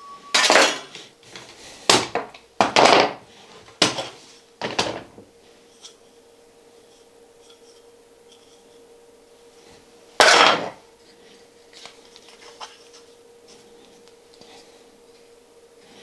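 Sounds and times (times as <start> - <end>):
faint steady hum: 0.0 - 16.0
wooden strip clattering on workbench: 2.0 - 3.2, 3.8 - 5.2, 10.2 - 10.8.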